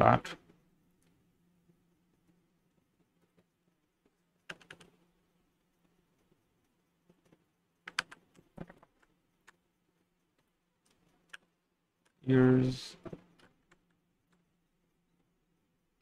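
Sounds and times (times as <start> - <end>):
faint steady hum: 0.0 - 16.0
keyboard keys clicking: 4.4 - 4.9, 7.2 - 9.6.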